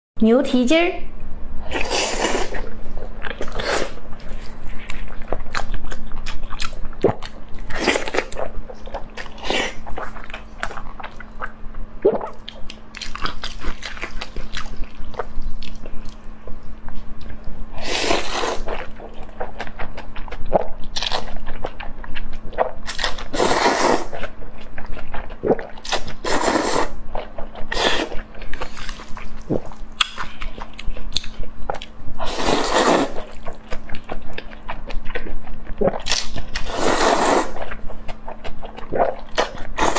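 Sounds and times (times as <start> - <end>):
slurping noodles: 1.7 - 2.7, 17.8 - 18.8, 23.0 - 24.2, 25.9 - 27.0, 32.2 - 33.3, 36.6 - 37.7
wet chewing and mouth smacks: 3.0 - 17.6, 27.1 - 32.0, 33.2 - 36.7.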